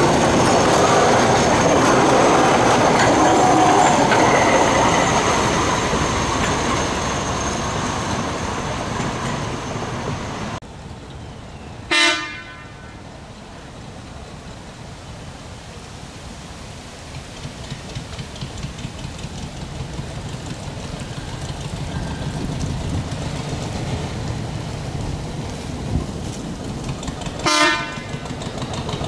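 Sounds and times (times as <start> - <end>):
miniature train running on track: 0.0 - 10.2, 17.1 - 29.0
locomotive horn toot: 11.9 - 13.0, 27.4 - 28.3.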